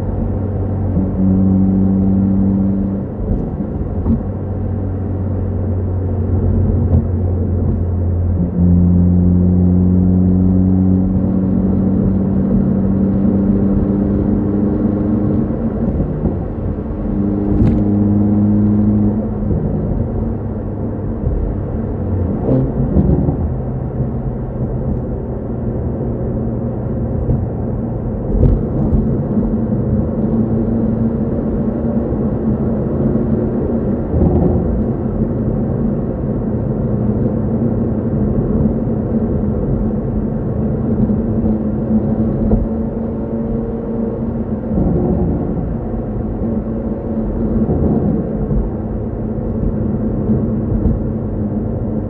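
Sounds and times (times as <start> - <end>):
car engine droning: 0.0 - 52.0
road noise: 0.0 - 52.0.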